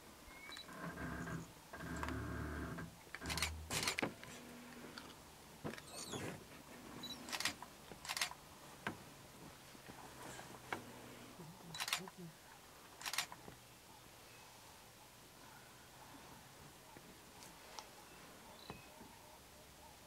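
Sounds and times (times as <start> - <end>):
sharp irregular clicks: 3.1 - 4.1, 13.0 - 13.4.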